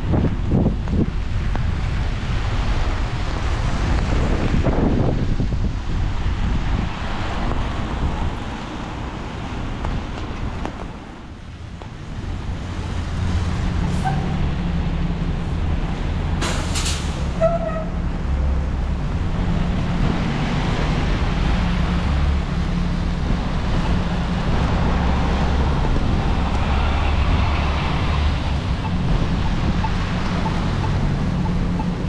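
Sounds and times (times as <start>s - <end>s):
wind rumble on microphone: 0.0s - 16.4s, 17.2s - 32.0s
traffic on wet streets: 0.0s - 32.0s
short sharp hiss: 16.4s - 17.3s.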